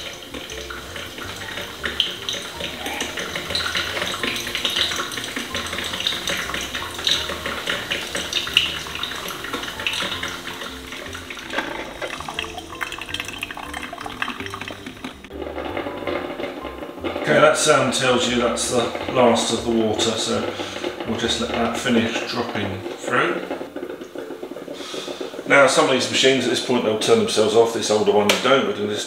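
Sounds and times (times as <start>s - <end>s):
coffee maker gurgling and sputtering: 0.0s - 29.0s
quiet background music: 0.0s - 29.0s.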